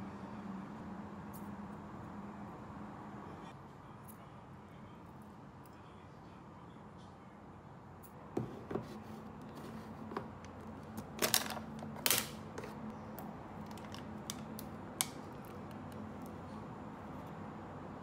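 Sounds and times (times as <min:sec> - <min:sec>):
objects clicking and knocking: 0:08.4 - 0:12.8, 0:13.6 - 0:16.0.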